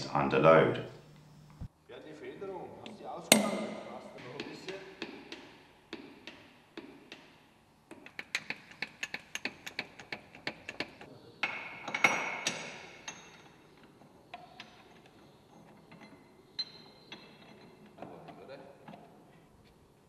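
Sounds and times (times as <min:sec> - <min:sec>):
metal clank ringing: 0:03.3 - 0:04.4
metal shackles clinking: 0:07.9 - 0:19.3.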